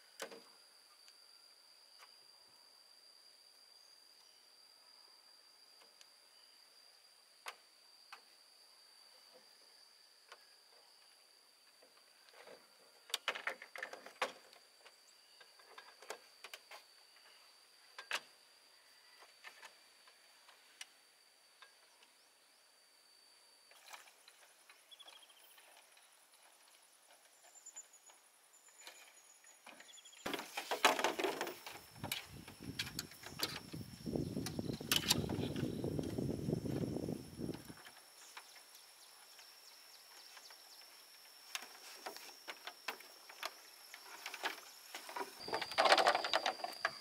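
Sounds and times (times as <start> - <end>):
bamboo rustling: 28.8 - 47.0
bamboo poles knocking together: 29.7 - 32.2, 44.1 - 46.8
high insect note: 31.4 - 47.0.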